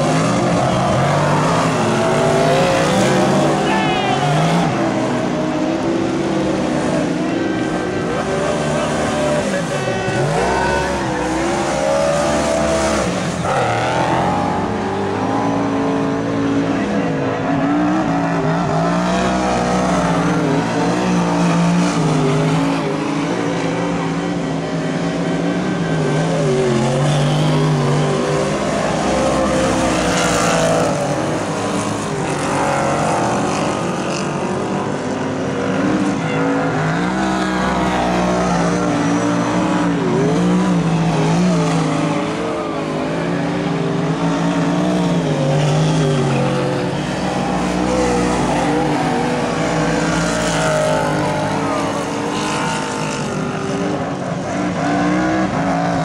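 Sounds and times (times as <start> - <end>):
race car engines revving: 0.0 - 56.0.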